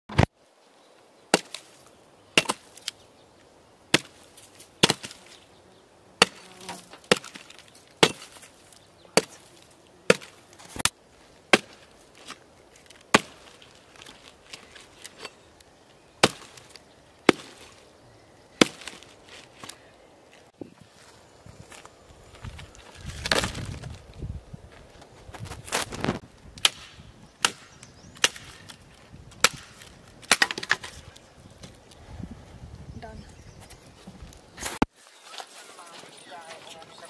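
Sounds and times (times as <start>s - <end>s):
axe chopping log: 1.3s - 1.7s, 2.4s - 3.0s, 3.9s - 4.2s, 4.8s - 5.4s, 6.2s - 8.6s, 9.2s - 12.4s, 13.0s - 14.6s, 16.2s - 17.8s, 18.6s - 19.0s, 23.2s - 23.8s, 26.6s - 31.0s.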